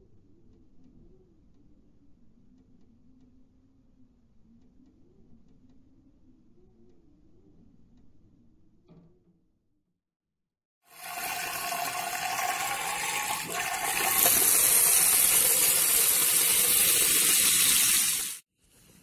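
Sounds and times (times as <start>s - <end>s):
water running from faucet: 10.9s - 18.4s.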